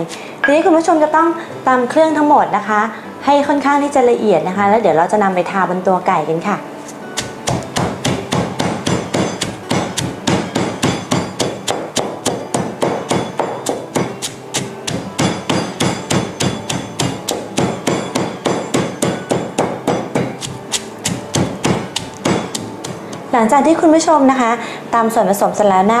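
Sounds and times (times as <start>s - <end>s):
stone pestle pounding in mortar: 7.2s - 23.8s.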